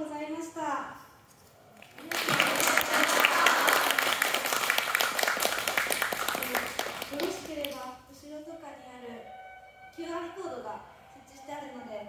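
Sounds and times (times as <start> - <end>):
audience applauding: 1.8 - 7.8.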